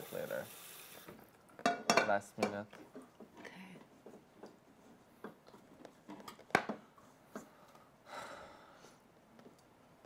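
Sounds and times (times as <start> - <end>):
soft hiss: 0.0 - 1.4.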